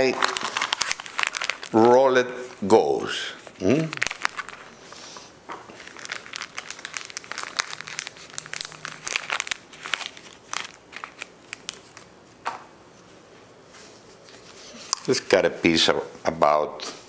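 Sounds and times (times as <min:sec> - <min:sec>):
packaging crinkling: 0:00.0 - 0:12.6.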